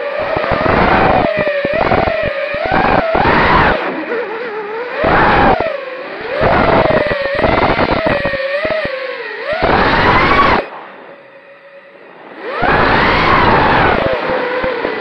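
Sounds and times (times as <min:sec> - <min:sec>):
quadcopter motors whining: 0:00.0 - 0:15.0
rushing prop and wind noise: 0:00.0 - 0:15.0.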